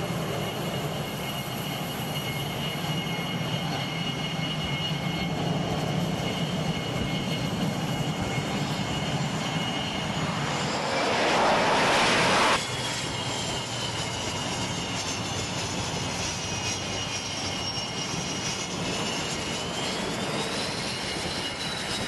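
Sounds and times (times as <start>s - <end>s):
jet engines roaring: 0.0s - 22.0s
loud rushing swell: 9.8s - 13.2s.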